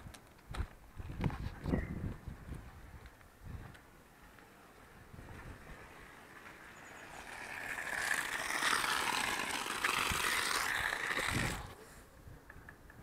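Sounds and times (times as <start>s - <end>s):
hose water spraying on gravel: 7.0s - 11.7s.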